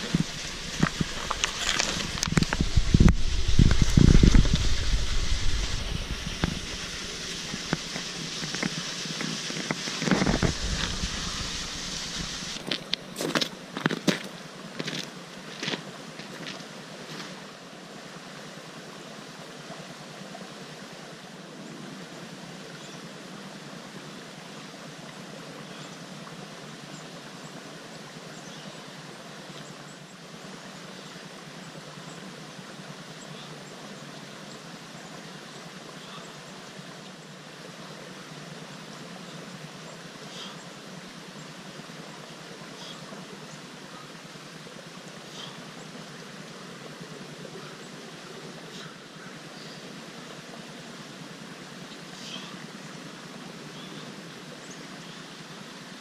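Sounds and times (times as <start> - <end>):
rustling through backpack: 0.0 - 2.8
steady hiss: 0.0 - 56.0.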